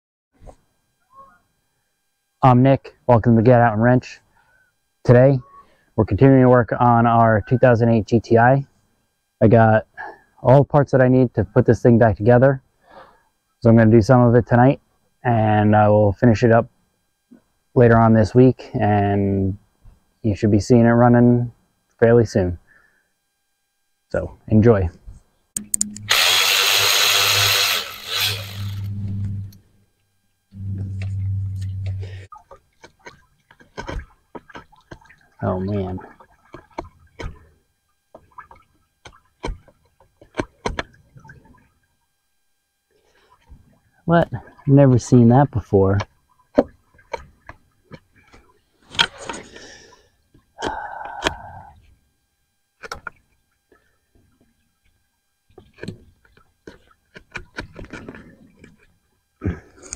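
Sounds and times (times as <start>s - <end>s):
metallic tool clicks: 25.6s - 26.2s
electric ratchet running: 25.9s - 29.3s.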